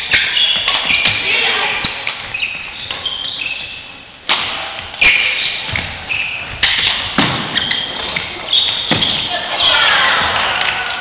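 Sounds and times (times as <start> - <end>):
racket striking shuttlecock: 0.0 - 1.2, 4.3 - 5.9, 6.6 - 7.9
shoes squeaking on court floor: 0.0 - 4.1, 4.8 - 10.3.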